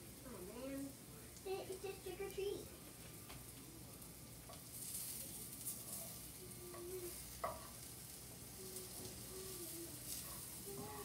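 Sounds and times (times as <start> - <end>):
batter sizzling in frying pan: 0.0 - 11.0
spatula tapping pan: 6.7 - 7.9.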